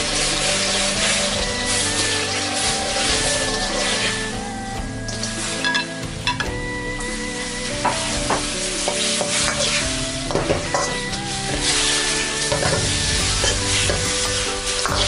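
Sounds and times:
shrimp sizzling in a wok: 0:07.4 - 0:15.0.

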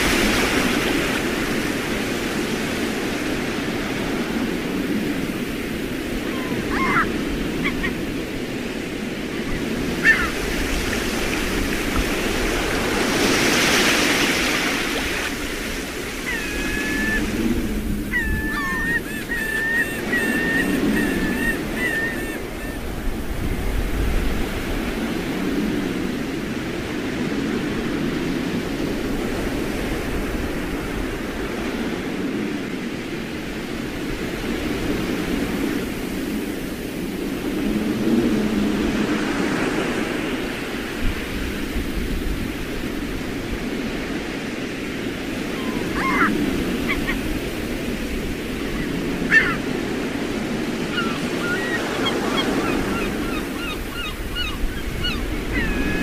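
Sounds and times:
sea waves washing on shore: 0:00.0 - 0:56.0
strong wind: 0:00.0 - 0:56.0
birds calling: 0:06.2 - 0:08.3, 0:09.3 - 0:10.7, 0:18.0 - 0:22.9, 0:45.4 - 0:47.4, 0:48.6 - 0:49.8, 0:50.6 - 0:56.0.

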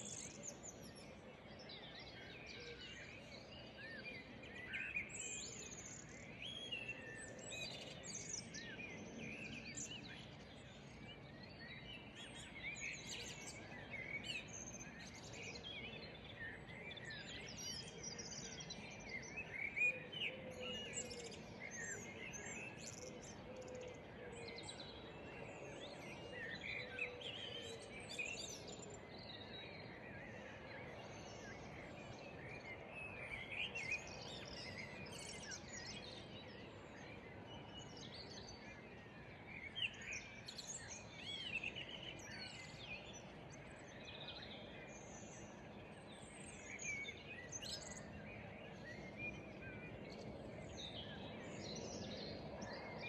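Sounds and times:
faint outdoor background hum: 0:00.0 - 0:53.0
songbirds chirping and singing: 0:00.0 - 0:53.0.

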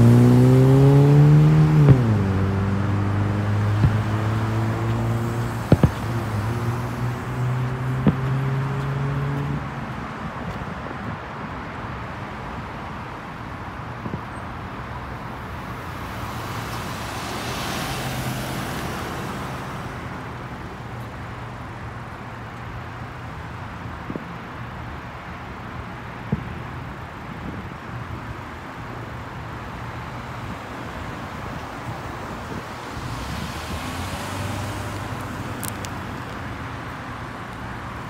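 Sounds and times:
rumble of road traffic: 0:00.0 - 0:38.0
short sharp pops: 0:05.6 - 0:06.2
passing car tyre hiss: 0:15.3 - 0:21.2, 0:31.1 - 0:38.0.

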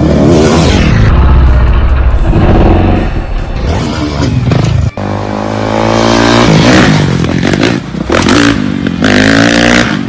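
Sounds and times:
dirt bike engine revving: 0:02.2 - 0:10.0.

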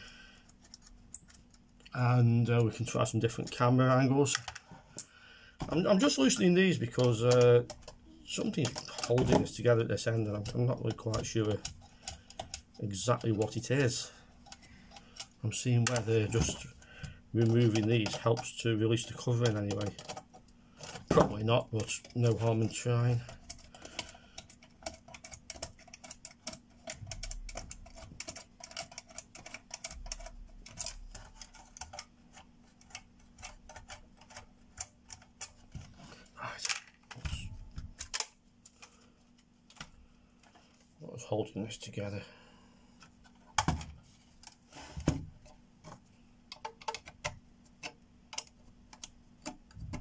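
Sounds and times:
hard plastic clicks and taps: 0:43.0 - 0:50.0.

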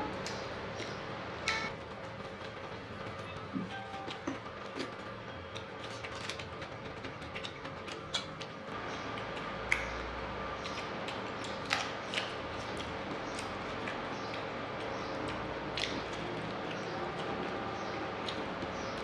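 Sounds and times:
faint steady hum: 0:00.0 - 0:06.1
chewing: 0:03.6 - 0:19.0.

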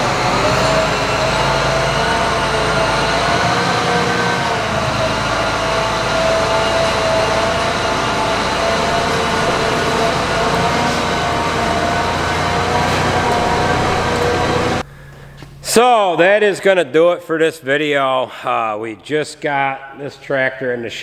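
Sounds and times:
whining mechanical drone: 0:00.0 - 0:15.8.

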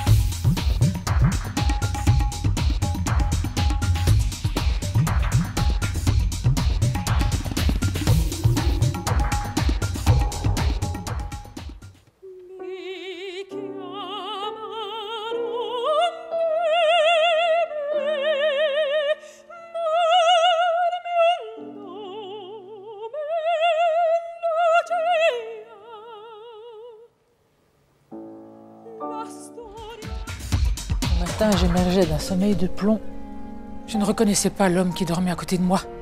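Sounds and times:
piano accompaniment: 0:00.0 - 0:12.0, 0:28.1 - 0:36.0
drum-backed music track: 0:00.0 - 0:12.1, 0:29.7 - 0:33.0
soprano singing opera: 0:12.2 - 0:27.1, 0:28.9 - 0:30.4.

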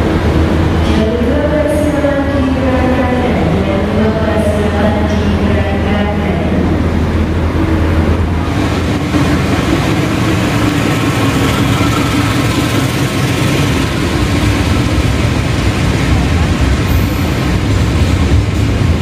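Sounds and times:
diesel locomotive engine running: 0:00.0 - 0:19.0
freight wagons rolling past: 0:08.4 - 0:19.0.

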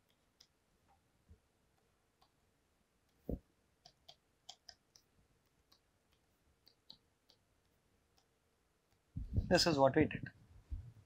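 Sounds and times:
stylus tapping on tablet: 0:03.0 - 0:09.2.

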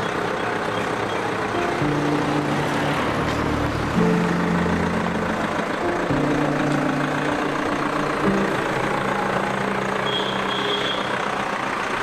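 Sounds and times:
heavy road traffic: 0:00.0 - 0:12.0
short high beeping: 0:09.9 - 0:11.2.

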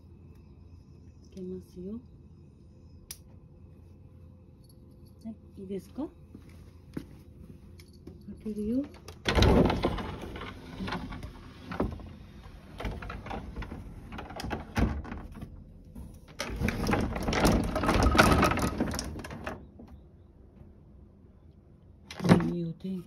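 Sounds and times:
wooden sliding doors scraping: 0:09.2 - 0:19.7.

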